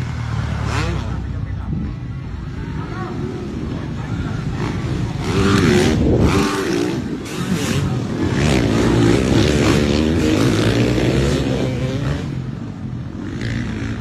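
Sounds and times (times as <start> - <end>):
dirt bike engines revving: 0.0 - 14.0.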